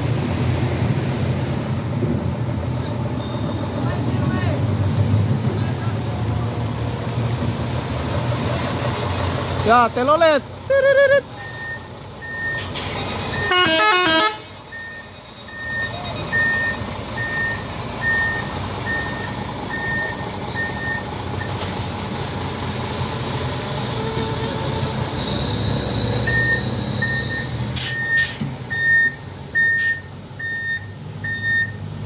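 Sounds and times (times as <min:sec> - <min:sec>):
diesel truck engine running: 0:00.0 - 0:32.0
musical truck horn: 0:13.3 - 0:14.6, 0:23.8 - 0:26.8
warning beeper beeps: 0:14.8 - 0:21.0, 0:25.1 - 0:31.8.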